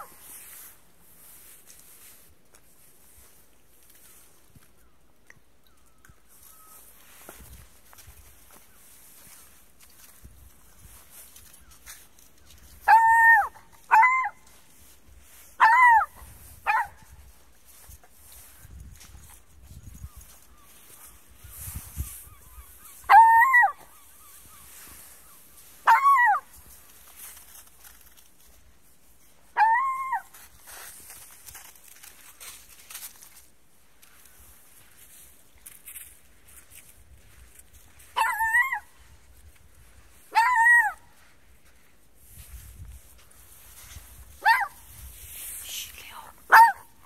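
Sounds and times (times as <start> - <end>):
dog yelping: 12.8 - 14.4, 15.6 - 17.0, 23.0 - 23.9, 25.8 - 26.5, 29.6 - 30.3, 38.2 - 38.9, 40.3 - 41.0, 44.4 - 44.8, 46.5 - 46.9.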